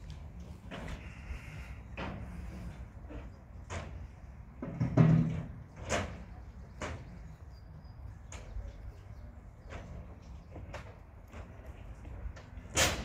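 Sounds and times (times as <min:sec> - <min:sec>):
knocks and bangs of metal parts: 0:03.2 - 0:07.2.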